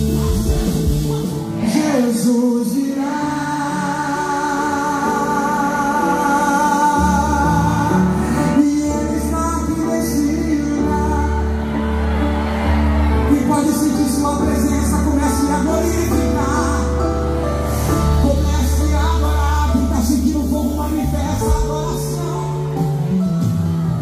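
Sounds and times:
deep bass line: 0:00.0 - 0:01.6, 0:13.0 - 0:24.0
person singing: 0:00.0 - 0:11.9
electric guitar chords: 0:00.0 - 0:14.5
keyboard chords: 0:00.0 - 0:24.0.

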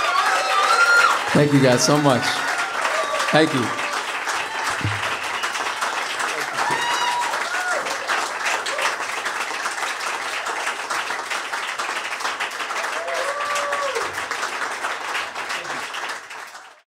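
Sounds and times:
person cheering: 0:00.0 - 0:05.4, 0:06.4 - 0:08.1, 0:12.8 - 0:14.1
audience applauding: 0:00.0 - 0:16.8.

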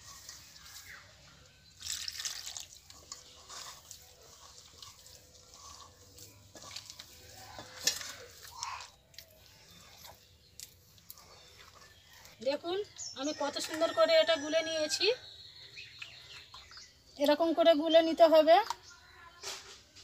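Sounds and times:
water pouring into steel bowl: 0:01.7 - 0:07.2
hand squelching wet batter: 0:01.7 - 0:12.4.

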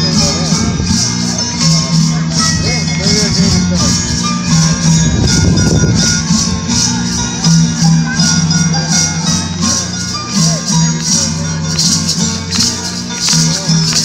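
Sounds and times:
traditional music with low sustained notes: 0:00.0 - 0:14.0.

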